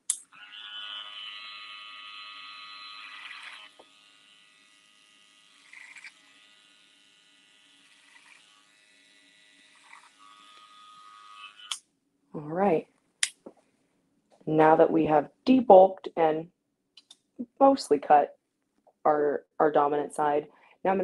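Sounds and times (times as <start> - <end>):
electric hair clipper buzzing: 0.1 - 11.8.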